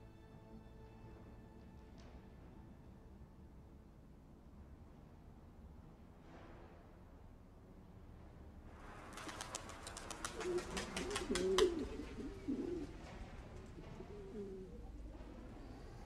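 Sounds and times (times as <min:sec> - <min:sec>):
pigeons cooing: 0:09.9 - 0:16.0.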